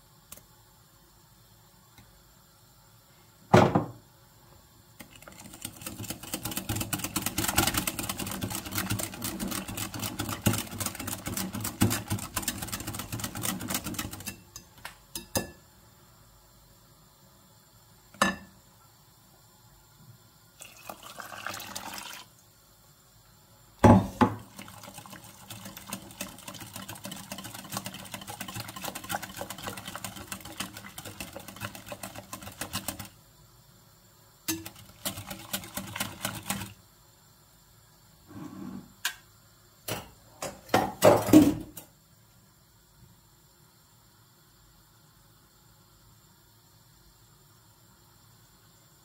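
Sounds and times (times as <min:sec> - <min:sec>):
whisk clicking against glass bowl: 0:05.4 - 0:14.4, 0:25.1 - 0:33.1.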